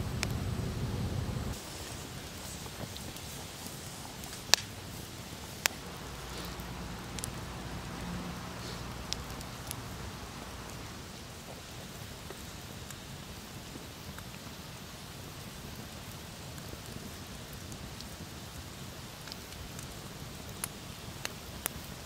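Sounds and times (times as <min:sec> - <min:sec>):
campfire flames hissing: 0:00.0 - 0:22.0
logs crackling and popping: 0:00.0 - 0:22.0.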